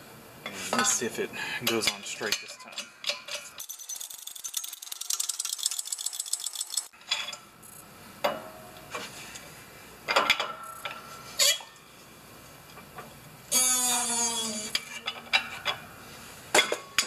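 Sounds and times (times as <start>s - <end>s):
fast metallic clicks: 3.2s - 6.9s.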